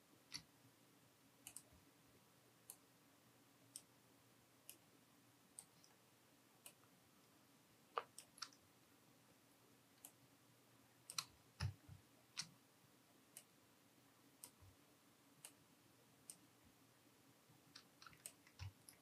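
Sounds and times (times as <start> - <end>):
faint room hiss: 0.0 - 19.0
computer mouse clicks: 1.4 - 1.7, 8.0 - 8.6, 11.1 - 12.6, 17.7 - 19.0.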